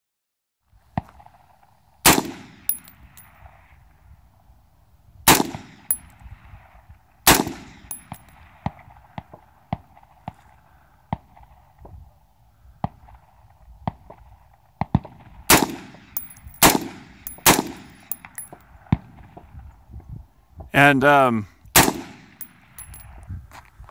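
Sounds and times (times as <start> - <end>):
rifle shots with echo: 2.0 - 3.2, 5.3 - 6.1, 7.3 - 10.0, 14.9 - 18.6, 21.8 - 23.0
sharp clicks and clinks: 2.7 - 3.2, 7.9 - 8.3, 16.2 - 16.6, 17.3 - 18.6, 22.4 - 23.1.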